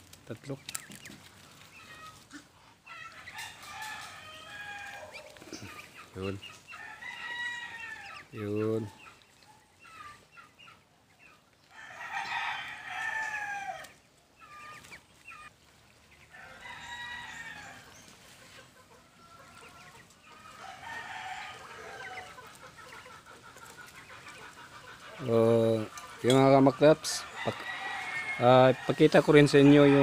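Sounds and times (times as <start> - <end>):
rooster crowing: 3.0 - 5.7, 6.7 - 8.3, 11.7 - 14.0, 16.3 - 18.0, 19.0 - 22.4, 27.0 - 30.0
rooster clucking: 18.3 - 30.0.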